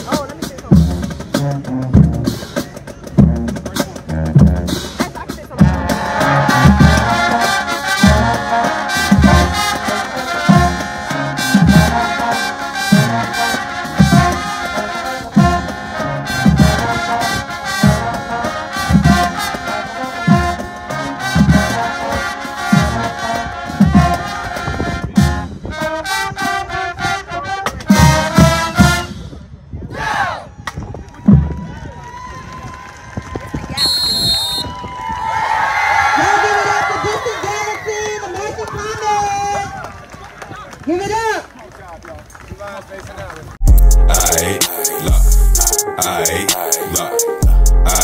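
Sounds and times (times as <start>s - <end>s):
bass drum beat: 0.0s - 12.3s, 12.9s - 17.2s, 43.6s - 48.0s
brass chords: 0.7s - 29.4s, 43.6s - 48.0s.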